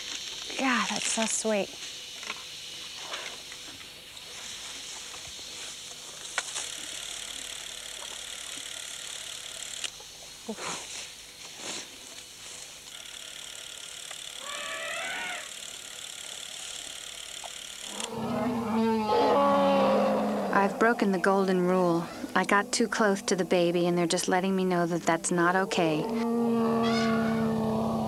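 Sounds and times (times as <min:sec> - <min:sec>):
tape hiss: 0:00.0 - 0:26.2
film camera clicking: 0:06.9 - 0:10.0, 0:12.9 - 0:14.5.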